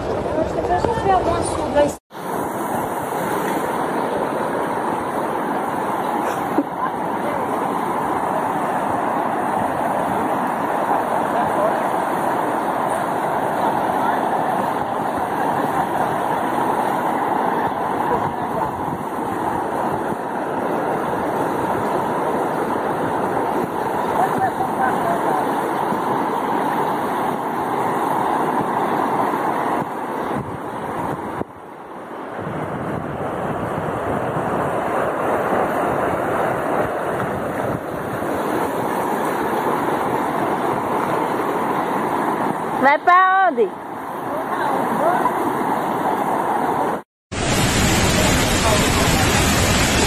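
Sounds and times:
floodwater rushing: 0.0s - 50.0s.

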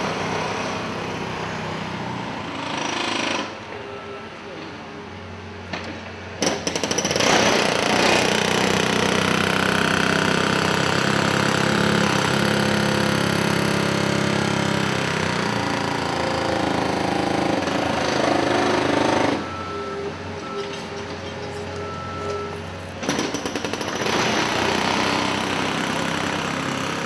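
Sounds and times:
loud machine running: 6.8s - 19.8s, 23.0s - 27.0s.

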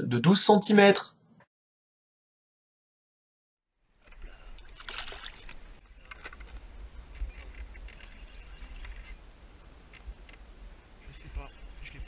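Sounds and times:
wind rumble on microphone: 5.6s - 12.0s.

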